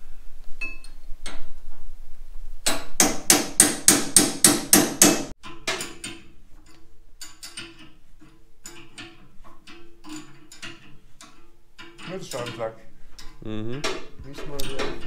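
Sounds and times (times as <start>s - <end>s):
hammer blows: 2.6s - 5.4s.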